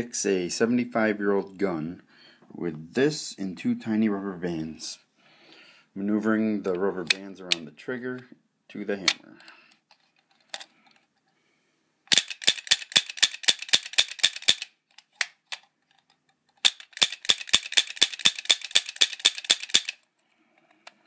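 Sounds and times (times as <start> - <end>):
toy revolver hammer clicking: 12.1 - 15.6, 16.6 - 20.0.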